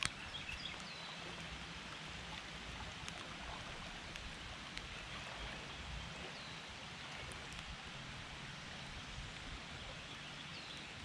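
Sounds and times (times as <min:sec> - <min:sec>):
creek water flowing: 0:00.0 - 0:11.0.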